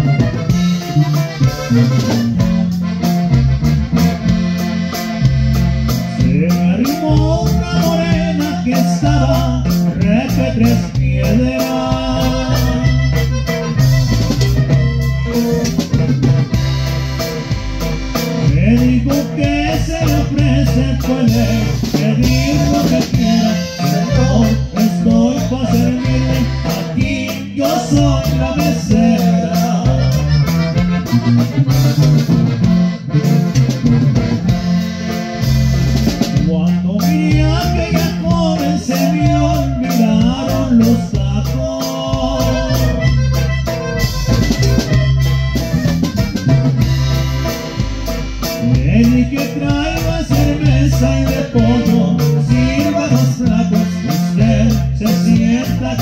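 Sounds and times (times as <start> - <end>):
accordion melody: 0.0 - 56.0
bass: 0.0 - 56.0
drum beat: 0.0 - 56.0
man singing: 6.1 - 13.3, 18.4 - 30.8, 36.3 - 43.3, 48.6 - 56.0.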